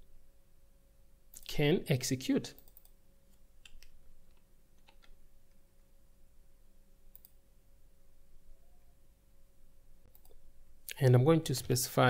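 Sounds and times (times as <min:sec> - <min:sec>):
faint keyboard keystrokes: 0:03.6 - 0:05.2.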